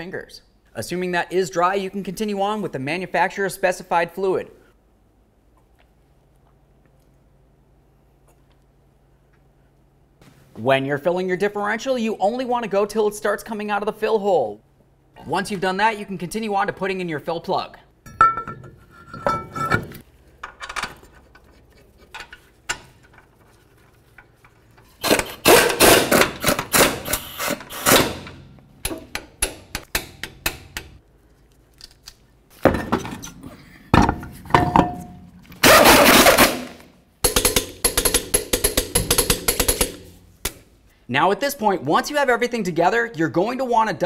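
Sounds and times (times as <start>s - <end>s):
metal clinks and knocks: 18.0s - 23.4s
power tool running in fasteners: 25.0s - 28.4s
impact wrench hammering: 25.0s - 31.0s, 34.0s - 40.6s.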